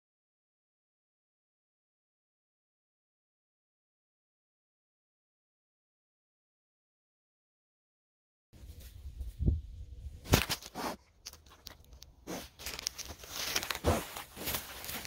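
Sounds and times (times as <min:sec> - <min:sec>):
grass rustling and crunching: 0:10.2 - 0:15.0.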